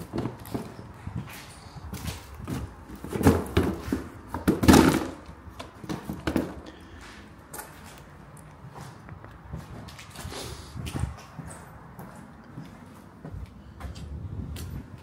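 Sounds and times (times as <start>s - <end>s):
footsteps: 5.9s - 15.0s.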